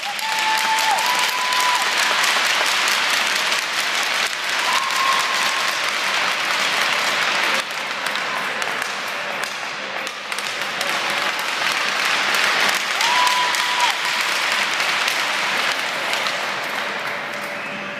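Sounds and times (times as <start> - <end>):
crowd applauding: 0.0 - 8.9, 10.4 - 17.5
person whooping: 13.0 - 14.1.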